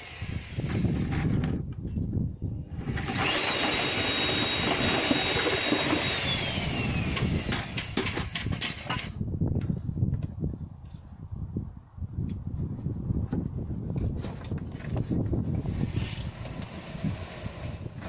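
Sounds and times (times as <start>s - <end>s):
paddle mixer churning concrete: 2.8s - 9.1s.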